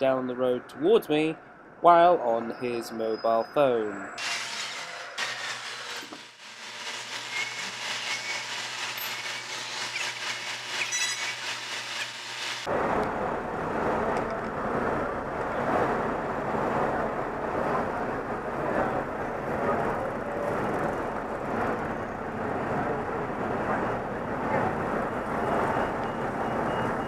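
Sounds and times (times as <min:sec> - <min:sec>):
city street traffic hiss: 0:06.5 - 0:27.0.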